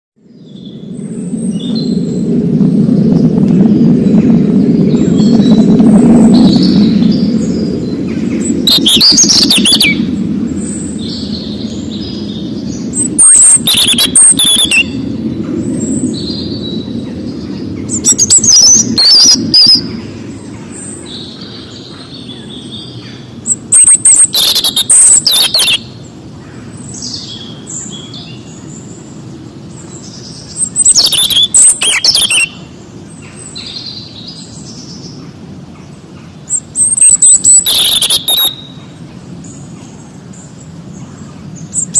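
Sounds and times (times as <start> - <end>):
low steady rumble: 0.2 - 41.9
robin singing: 4.6 - 15.0, 15.7 - 29.1, 29.7 - 35.2, 36.5 - 39.7
soft bird calls: 6.4 - 15.0, 15.7 - 41.9.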